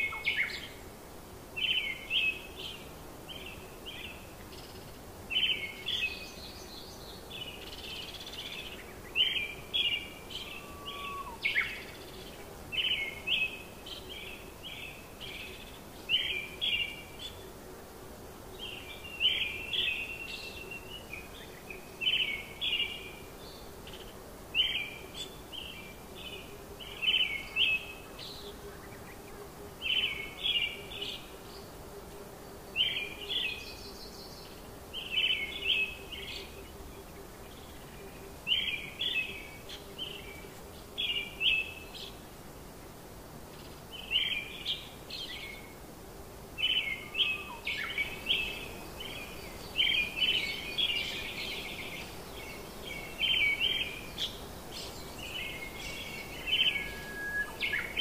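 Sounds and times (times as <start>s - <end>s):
faint low hum and hiss: 0.0s - 58.0s
songbird singing high notes: 10.0s - 11.8s, 55.5s - 58.0s.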